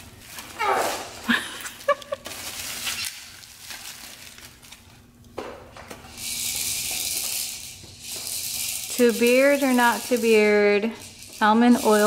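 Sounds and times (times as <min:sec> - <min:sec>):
bubble wrap crinkling: 0:00.0 - 0:05.2.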